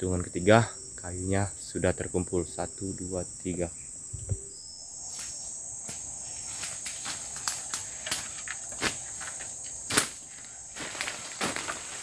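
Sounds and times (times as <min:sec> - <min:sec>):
insect chorus chirring: 0:00.0 - 0:12.0
dry leaves and twigs crackling: 0:04.8 - 0:12.0.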